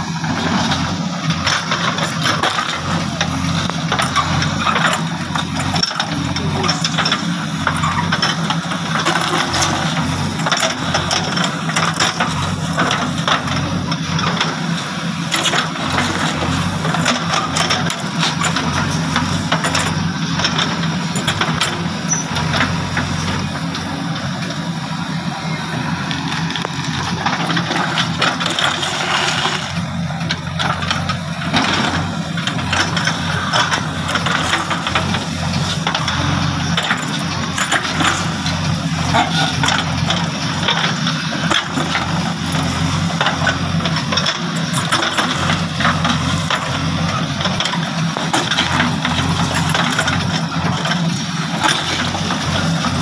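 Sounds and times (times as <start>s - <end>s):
diesel engine running: 0.0s - 53.0s
bucket clanking and scraping: 26.2s - 53.0s.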